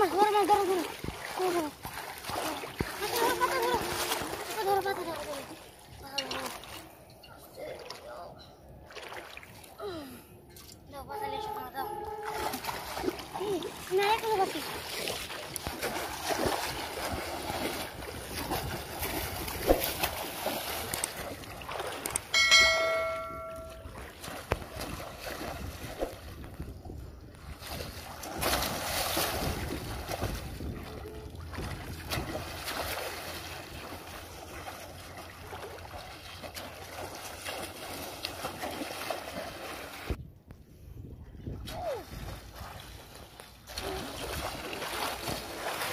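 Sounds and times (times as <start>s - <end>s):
water sloshing and splashing: 0.0s - 40.2s, 41.4s - 45.9s
sharp hit with ringing tone: 22.3s - 23.9s.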